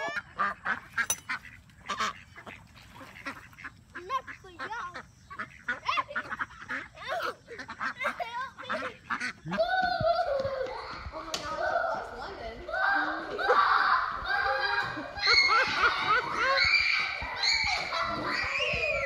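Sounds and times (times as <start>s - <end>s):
ducks quacking: 0.0s - 9.8s.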